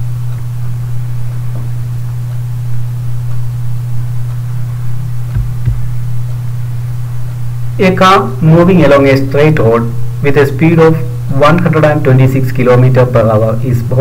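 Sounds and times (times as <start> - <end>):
mains hum: 0.0 - 14.0
faint soft thumps: 5.3 - 6.0.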